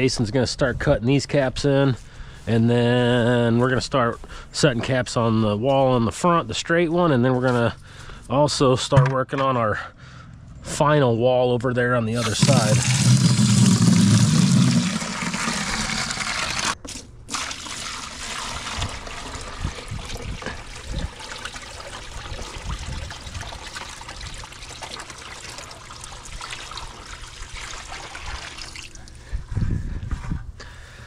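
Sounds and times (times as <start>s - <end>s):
water running into a tank: 12.2s - 29.3s.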